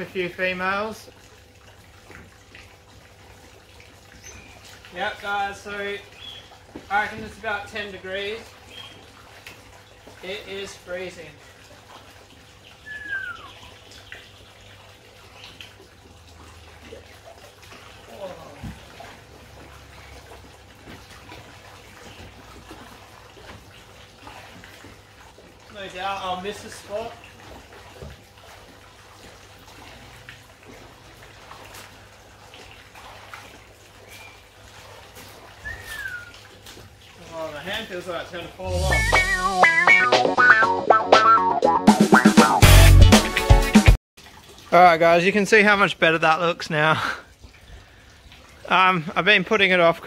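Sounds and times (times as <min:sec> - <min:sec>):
water sloshing and splashing: 0:00.0 - 0:39.4, 0:44.2 - 0:50.0
short falling squeak: 0:04.2 - 0:04.6.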